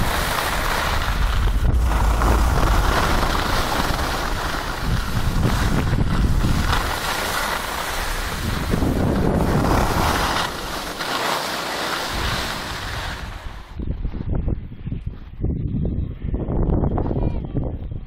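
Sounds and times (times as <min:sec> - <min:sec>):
wind buffeting microphone: 0:00.0 - 0:11.0, 0:11.9 - 0:18.0
skis hissing over snow: 0:00.0 - 0:13.8.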